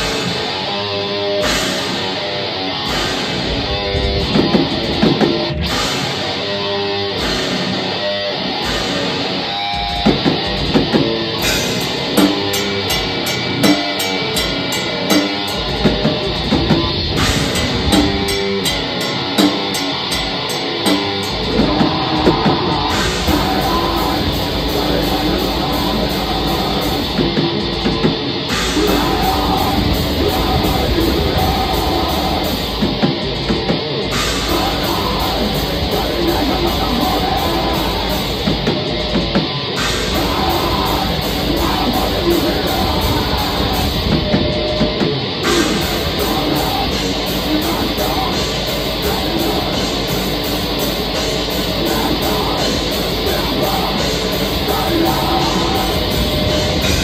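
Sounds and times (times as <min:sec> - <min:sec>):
distorted electric guitars: 0:00.0 - 0:57.0
drum kit: 0:00.0 - 0:57.0.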